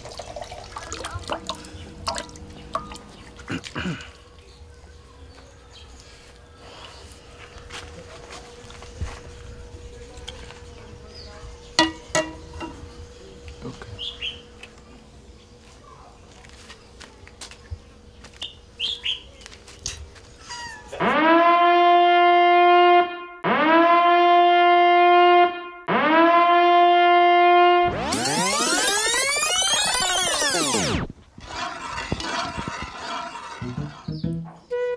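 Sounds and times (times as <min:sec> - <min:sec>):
horn-like censorship blasts: 0:21.0 - 0:31.1, 0:33.6 - 0:34.9.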